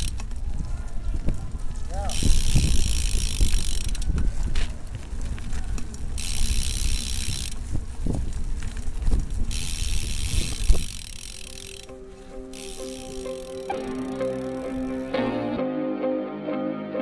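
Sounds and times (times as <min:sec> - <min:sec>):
bike hub ratchet buzzing: 0:00.0 - 0:00.4, 0:01.9 - 0:04.2, 0:05.8 - 0:15.1.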